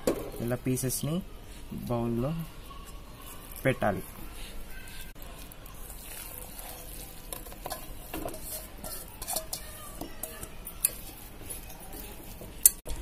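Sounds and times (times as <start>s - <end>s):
wet squelching and scraping: 2.8s - 12.9s.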